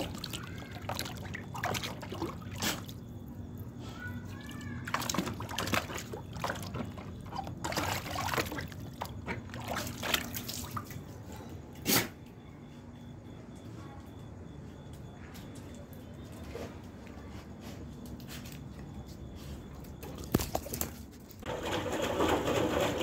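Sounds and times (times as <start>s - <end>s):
dog splashing in tub of water: 0.0s - 11.2s, 20.1s - 23.0s.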